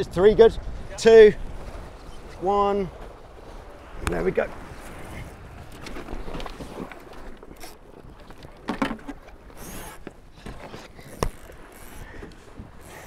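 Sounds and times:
wind: 0.0s - 13.0s
water splashing against boat: 1.4s - 13.0s
knocks from boat gear: 8.3s - 9.3s, 10.0s - 11.6s.

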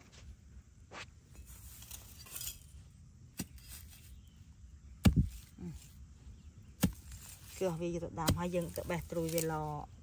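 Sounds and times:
dull thud: 5.0s - 5.5s.

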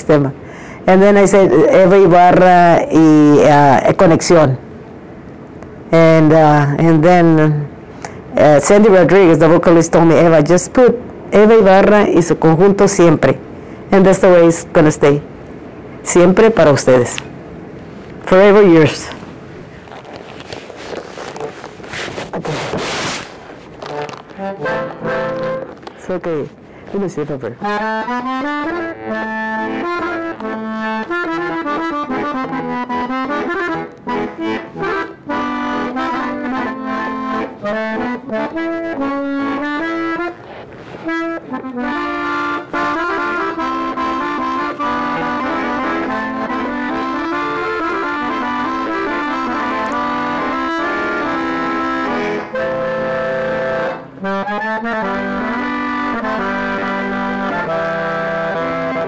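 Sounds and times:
button accordion playing: 18.6s - 59.0s.

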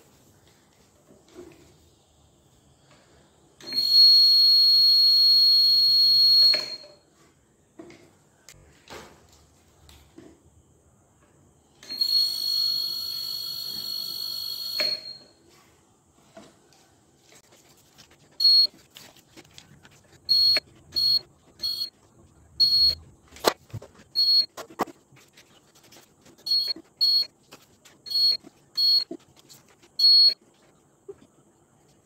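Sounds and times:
heat sealer beeping: 3.6s - 7.0s, 11.8s - 15.4s, 20.3s - 21.9s, 22.6s - 23.0s, 24.2s - 24.5s, 26.5s - 27.3s, 30.0s - 30.4s.

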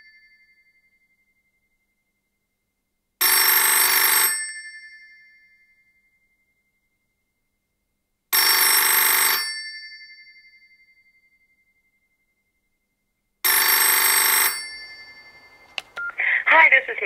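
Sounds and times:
telephone ringing: 3.2s - 4.5s, 8.4s - 9.6s, 13.4s - 17.0s.

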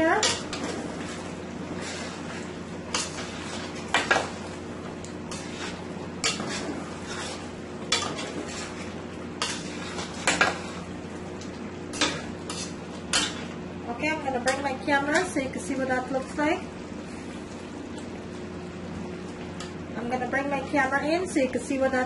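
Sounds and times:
steady low hum: 0.0s - 22.0s
spoon scraping a metal pot: 5.3s - 10.8s, 12.0s - 13.4s.

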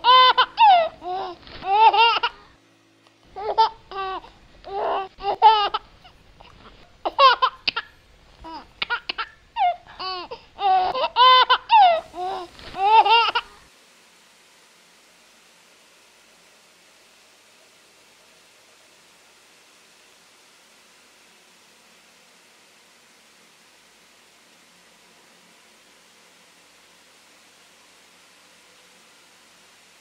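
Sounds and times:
baby giggling and babbling: 0.0s - 2.4s, 3.4s - 13.6s
faint hiss: 0.0s - 30.0s.

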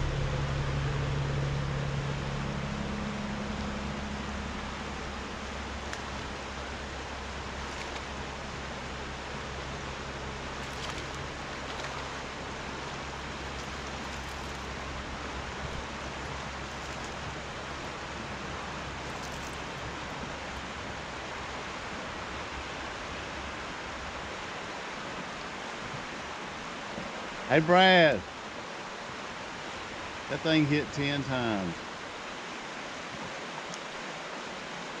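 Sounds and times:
low hum: 0.0s - 25.1s
river water rushing over rocks: 1.9s - 35.0s.

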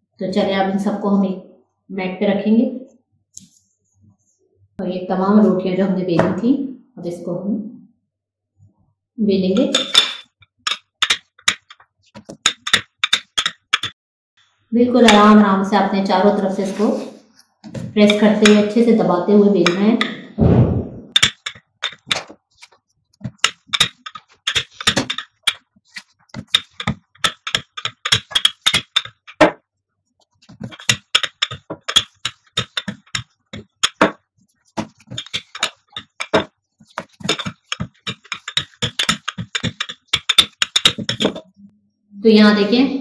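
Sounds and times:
rolling pin clicking on dough: 9.7s - 14.0s, 18.0s - 18.8s, 21.1s - 29.6s, 30.4s - 41.4s.

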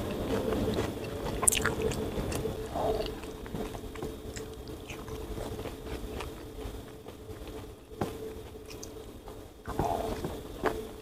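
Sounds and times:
chewing with wet mouth clicks: 0.0s - 10.9s.

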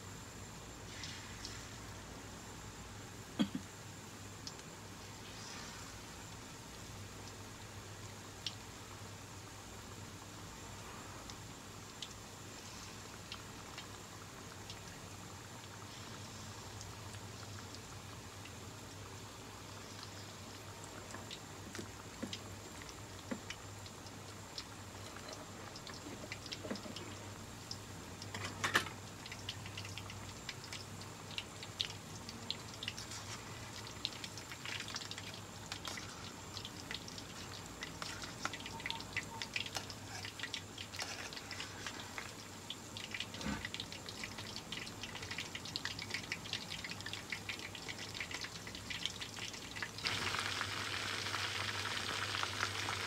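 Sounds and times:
food deep-frying in oil: 0.0s - 53.0s.

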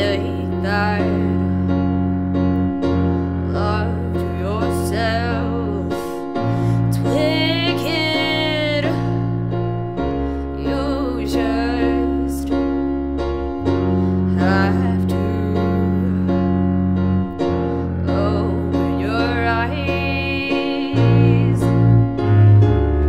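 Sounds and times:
woman singing: 0.0s - 1.6s, 3.5s - 9.1s, 10.5s - 12.6s, 14.3s - 16.4s, 18.0s - 21.9s
bowed double bass: 0.0s - 23.0s
grand piano chords: 0.0s - 23.0s.

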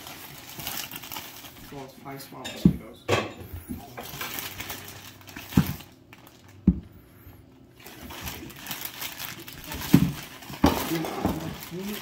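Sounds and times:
plastic bag rustling: 0.0s - 2.4s, 3.6s - 6.8s, 7.7s - 12.0s
potatoes knocking on table: 6.6s - 6.9s, 9.8s - 11.6s.

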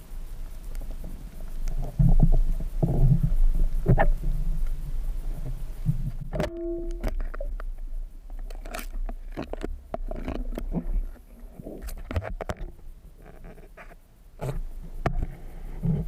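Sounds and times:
low underwater rumble: 0.0s - 10.0s
underwater clicks and knocks: 0.8s - 4.8s, 5.4s - 13.6s
brief humming tone: 6.4s - 7.2s.

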